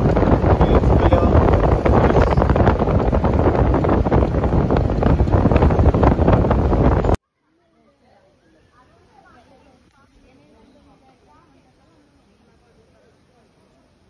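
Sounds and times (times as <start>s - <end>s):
wind buffeting microphone: 0.0s - 7.2s.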